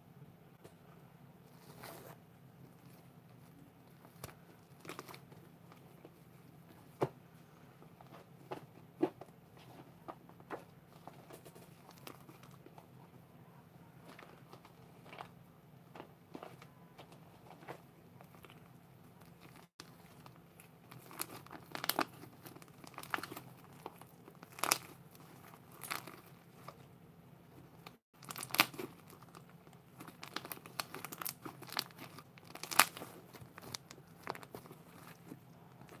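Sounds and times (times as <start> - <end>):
slime crinkly crackles: 1.5 - 6.8, 10.9 - 12.9, 15.9 - 26.9, 27.5 - 36.0.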